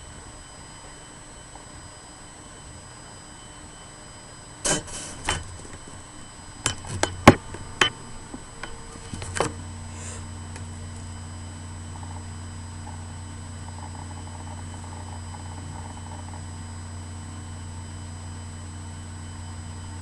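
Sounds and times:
electrical hum: 0.0s - 20.0s
faint high whine: 0.0s - 20.0s
low hum: 4.6s - 20.0s
sharp knocks and bumps: 6.6s - 9.6s.

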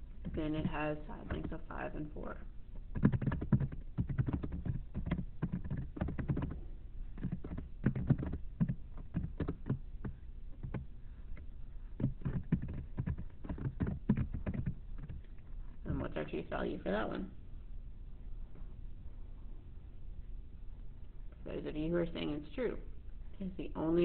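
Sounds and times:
typing on computer keyboard: 2.9s - 6.6s, 7.2s - 10.9s, 12.0s - 15.4s.

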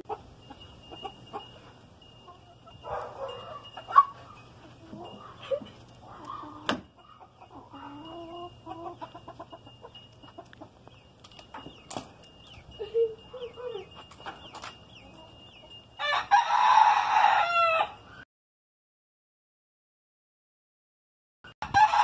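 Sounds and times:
chickens clucking: 0.0s - 16.0s
rooster crowing: 16.0s - 18.2s, 21.6s - 22.0s.

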